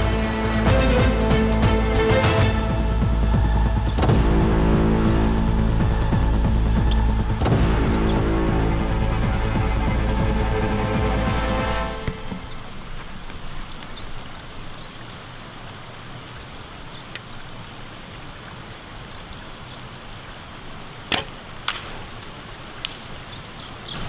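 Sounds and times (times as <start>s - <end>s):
steady background hiss: 9.8s - 24.0s
bow string snap: 21.1s - 22.0s
arrow hitting with crack: 21.1s - 23.1s.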